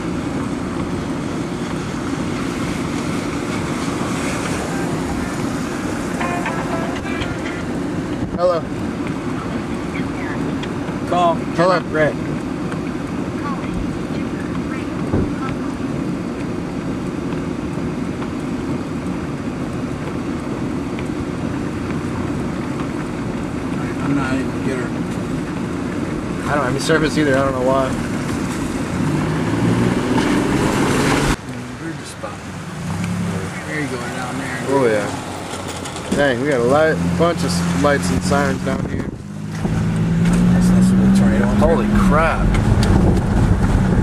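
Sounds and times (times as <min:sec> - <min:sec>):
wind buffeting microphone: 0:38.6 - 0:40.5, 0:42.3 - 0:44.0
storm wind on microphone: 0:42.4 - 0:44.0.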